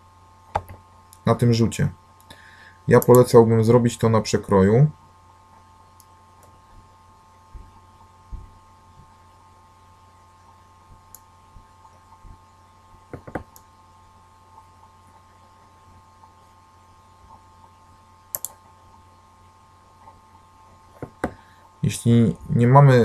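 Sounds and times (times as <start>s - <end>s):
electrical hum: 0.0s - 23.0s
mouse clicks: 3.0s - 3.3s, 18.3s - 18.6s
soft low thumps: 6.6s - 9.2s, 10.8s - 13.5s.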